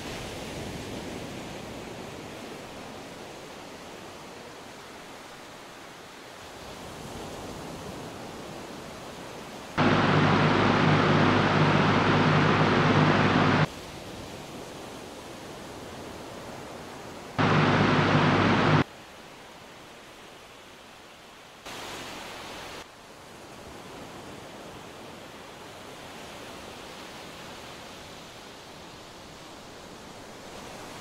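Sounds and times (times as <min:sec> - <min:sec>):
loud roar with low hum: 0:09.8 - 0:13.7, 0:17.4 - 0:18.8.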